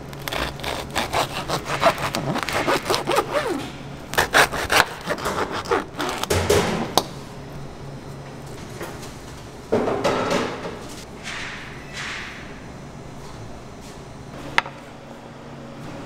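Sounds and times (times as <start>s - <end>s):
bread knife sawing: 0.2s - 6.3s.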